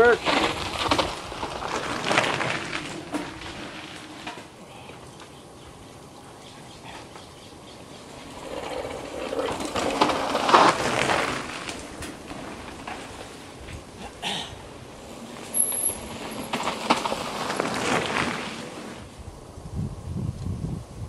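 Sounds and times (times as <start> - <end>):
bike tyres crunching over dirt: 0.0 - 19.3
bike clicks and knocks: 0.2 - 5.4, 8.1 - 13.9, 15.2 - 18.6.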